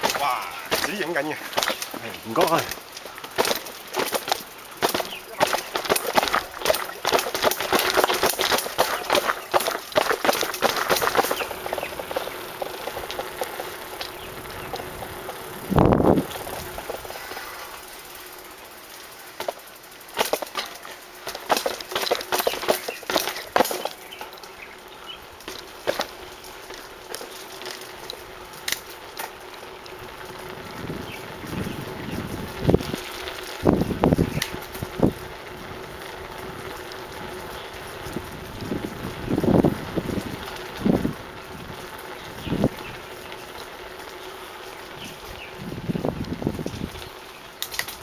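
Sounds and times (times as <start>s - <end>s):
bicycle tyres rolling on concrete: 0.0s - 48.0s
bike rattling and clicking: 0.0s - 48.0s
wind buffets and knocks: 3.3s - 17.1s, 30.4s - 35.3s, 38.0s - 43.0s, 45.3s - 48.0s
wind rushing over microphone: 14.2s - 16.8s, 30.5s - 33.0s, 33.6s - 35.3s, 45.6s - 47.0s.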